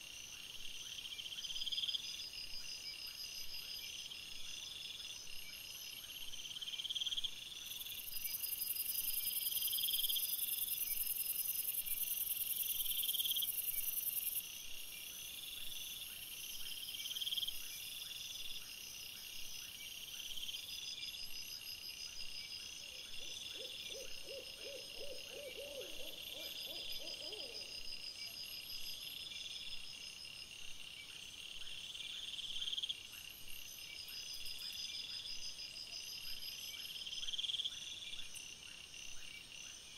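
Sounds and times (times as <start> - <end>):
crickets chirping: 0.0 - 39.9
low quavering hoot-like call: 23.0 - 27.8.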